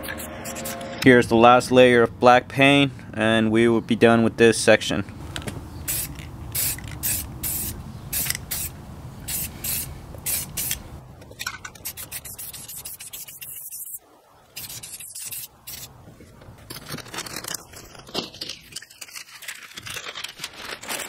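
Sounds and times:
aerosol spray hissing bursts: 0:05.9 - 0:10.8, 0:11.8 - 0:14.0.

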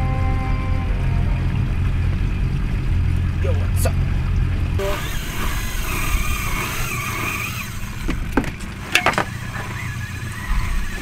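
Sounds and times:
wavering high tone: 0:00.0 - 0:02.5
boat motor rumbling: 0:00.0 - 0:11.0.

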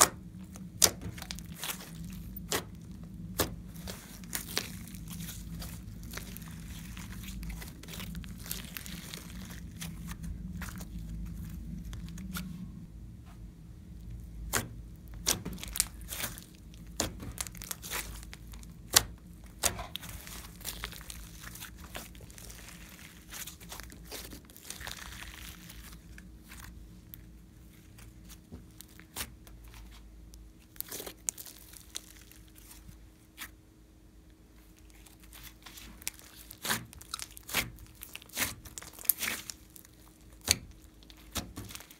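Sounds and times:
slime squishing: 0:00.0 - 0:12.9, 0:13.9 - 0:33.6, 0:34.4 - 0:41.9.

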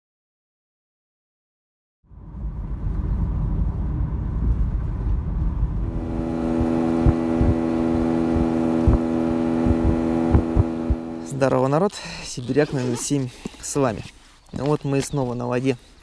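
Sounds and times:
short low thumps: 0:05.6 - 0:11.4
boat motor running: 0:05.8 - 0:11.6.

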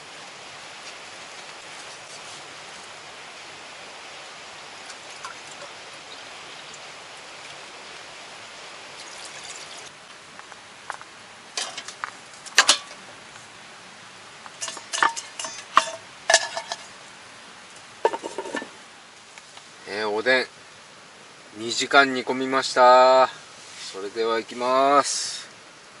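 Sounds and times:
steady watery hiss: 0:00.0 - 0:26.0
metal cookware clinking: 0:11.6 - 0:12.0, 0:12.6 - 0:13.0, 0:14.6 - 0:16.9, 0:18.0 - 0:18.7.

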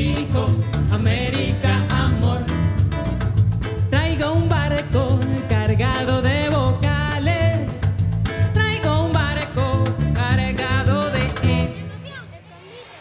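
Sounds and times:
hand percussion beat: 0:00.0 - 0:11.8
acoustic guitar: 0:00.0 - 0:12.2
bass: 0:00.0 - 0:12.2
woman singing: 0:03.9 - 0:07.9, 0:08.5 - 0:11.8.

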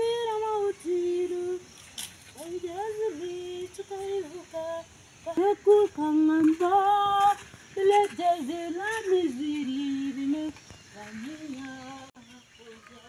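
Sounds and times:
woman singing unaccompanied: 0:00.0 - 0:13.0.

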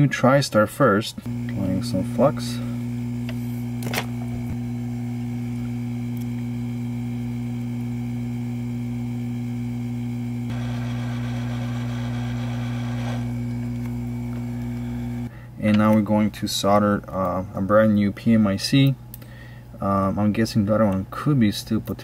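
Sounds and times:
electrical hum: 0:00.0 - 0:22.0
click: 0:06.1 - 0:06.5, 0:13.5 - 0:14.8, 0:18.8 - 0:19.3.

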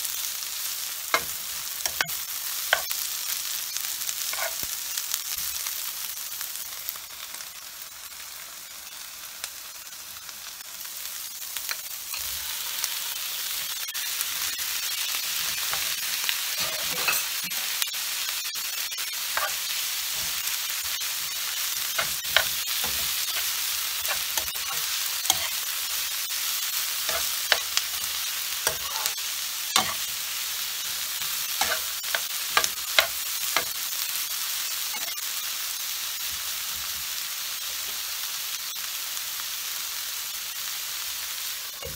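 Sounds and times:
food sizzling in a frying pan: 0:00.0 - 0:41.9
spatula scraping a pan: 0:04.3 - 0:04.6, 0:15.3 - 0:17.7, 0:19.3 - 0:25.6, 0:27.0 - 0:29.2, 0:29.8 - 0:30.1, 0:30.8 - 0:33.7.

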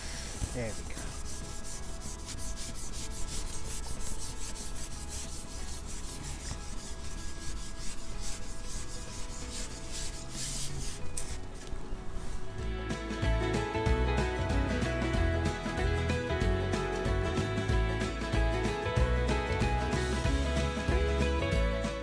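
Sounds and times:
fishing pole sections scraping: 0:00.0 - 0:11.8
faint background music: 0:00.0 - 0:22.0.

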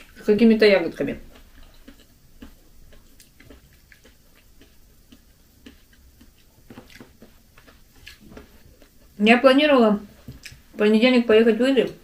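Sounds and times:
person chewing: 0:01.2 - 0:09.2, 0:10.2 - 0:10.7.

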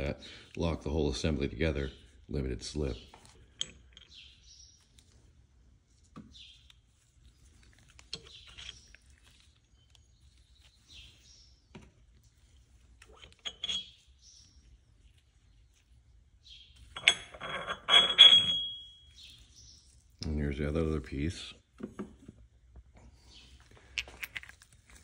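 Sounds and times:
small metal clinks: 0:03.2 - 0:05.1, 0:07.8 - 0:09.9, 0:13.0 - 0:14.8, 0:16.8 - 0:19.3, 0:23.8 - 0:25.0
metal gears clicking and scraping: 0:08.0 - 0:09.2.

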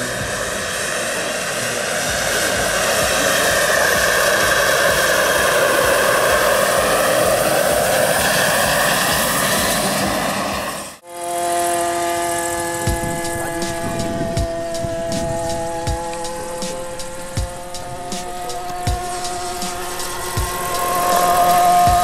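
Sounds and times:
model helicopter whine: 0:00.0 - 0:22.0.

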